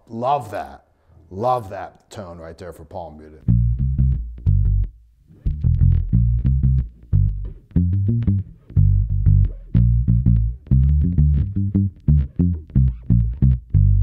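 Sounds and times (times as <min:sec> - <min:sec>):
palm-muted electric bass riff: 0:03.4 - 0:14.0.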